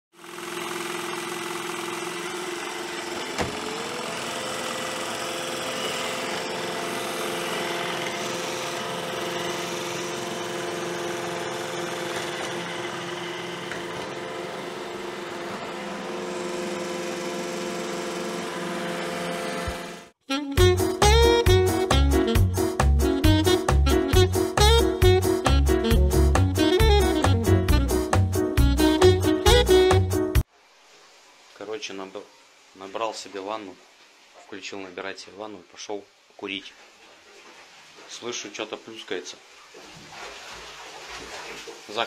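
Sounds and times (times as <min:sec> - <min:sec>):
robot vacuum motor hum: 0:00.2 - 0:20.1.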